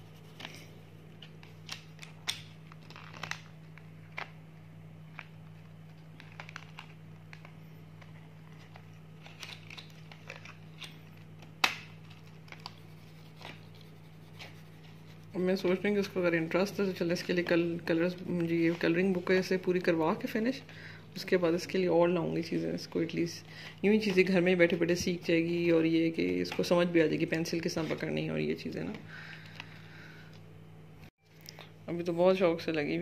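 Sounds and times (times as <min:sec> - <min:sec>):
steady low hum: 0:00.0 - 0:33.0
pencils clicking and rustling: 0:05.1 - 0:15.0.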